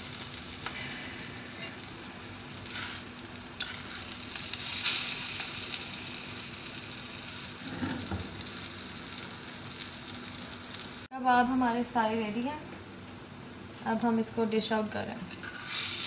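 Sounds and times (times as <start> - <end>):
food sizzling in a pan: 0.0 - 11.7, 15.4 - 16.0
spatula stirring in a pan: 2.5 - 10.0, 15.4 - 16.0.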